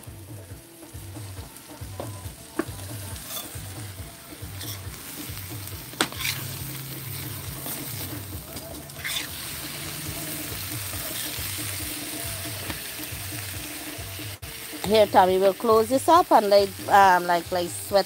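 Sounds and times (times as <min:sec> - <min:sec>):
curry sizzling in a pan: 0:00.0 - 0:18.0
spatula scraping a metal pan: 0:03.1 - 0:03.7, 0:04.4 - 0:11.7.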